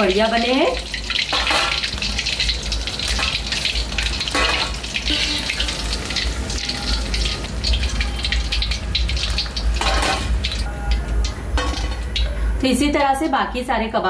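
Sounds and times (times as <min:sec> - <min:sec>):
food deep-frying in oil: 0:00.0 - 0:14.0.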